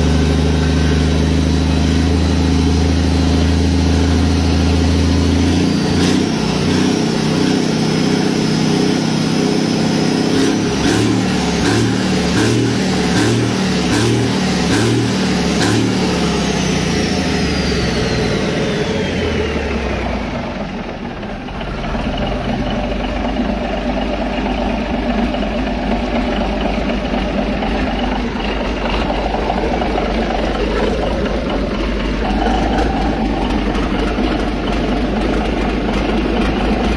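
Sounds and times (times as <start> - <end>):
diesel engine running: 0.0 - 36.9
high whine: 27.8 - 36.9.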